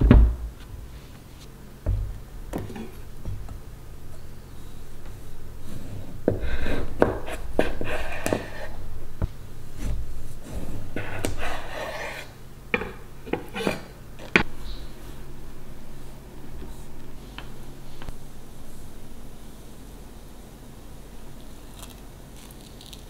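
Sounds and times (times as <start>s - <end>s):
knife rasping through orange rind: 9.8s - 12.4s.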